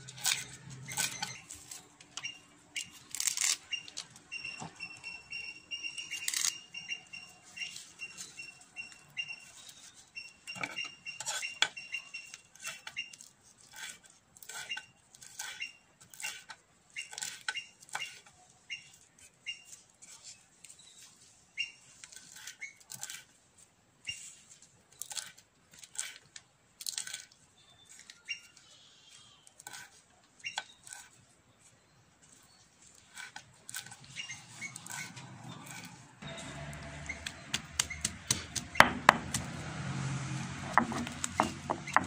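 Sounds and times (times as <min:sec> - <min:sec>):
knife chopping on wooden board: 0:37.2 - 0:39.6, 0:40.6 - 0:42.0.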